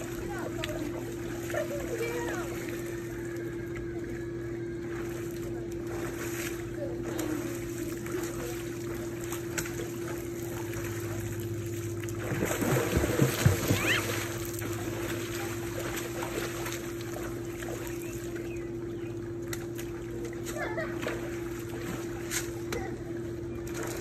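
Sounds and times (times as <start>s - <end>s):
steady low hum: 0.0s - 24.0s
water splashing: 0.0s - 24.0s
sharp water slaps: 5.9s - 11.2s, 11.8s - 18.4s, 19.4s - 23.0s.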